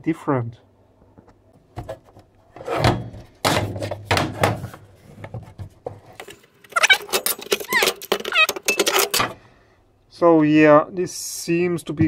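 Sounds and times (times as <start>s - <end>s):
squeaky metal rubbing: 6.7s - 9.2s.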